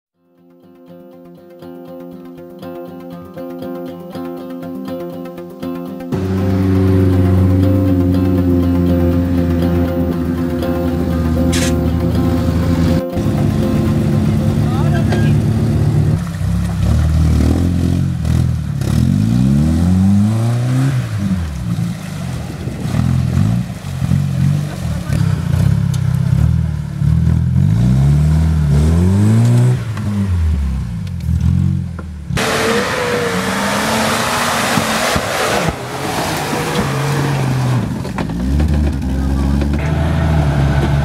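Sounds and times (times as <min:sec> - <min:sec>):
low steady engine: 0:06.1 - 0:18.9
off-road engine revving: 0:06.1 - 0:41.0.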